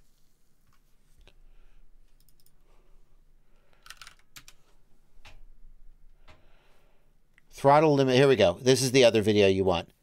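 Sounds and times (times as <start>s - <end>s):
faint keyboard keystrokes: 2.1s - 2.6s, 3.7s - 5.4s.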